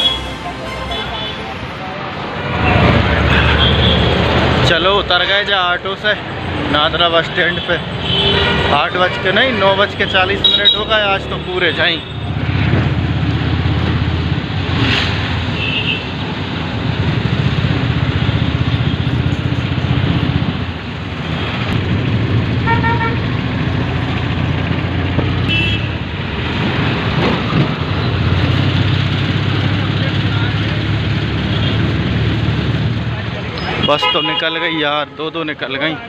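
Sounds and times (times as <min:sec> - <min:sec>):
vehicle horns honking: 0:00.0 - 0:01.7, 0:03.2 - 0:04.2, 0:07.4 - 0:12.4, 0:15.5 - 0:16.2, 0:22.6 - 0:23.3, 0:25.4 - 0:26.0, 0:33.6 - 0:34.8
auto-rickshaw engine rumbling: 0:02.2 - 0:36.0.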